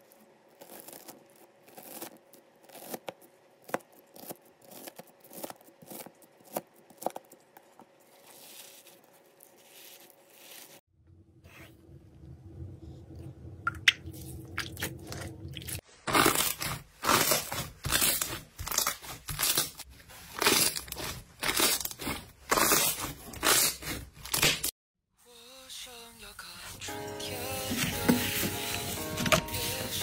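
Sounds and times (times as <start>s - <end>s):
slime squishing and crackling: 14.6s - 24.5s.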